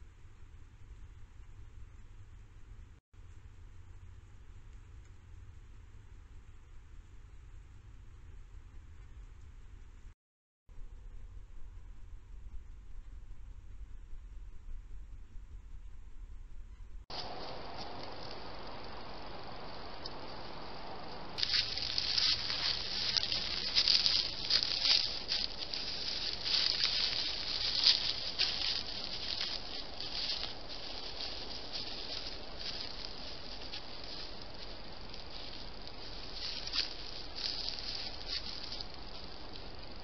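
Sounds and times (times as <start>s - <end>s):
leaves rustling and crunching: 17.1s - 40.0s
microphone hiss: 17.1s - 40.0s.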